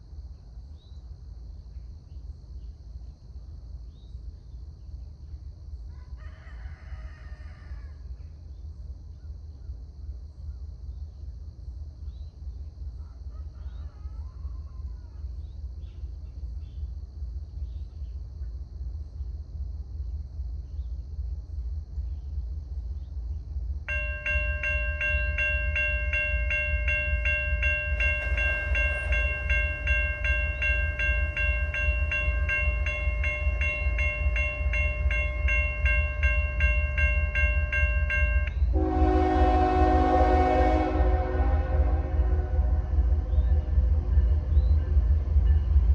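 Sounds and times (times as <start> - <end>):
crossing signal bell ringing: 23.9 - 42.7
locomotive horn: 38.7 - 43.5.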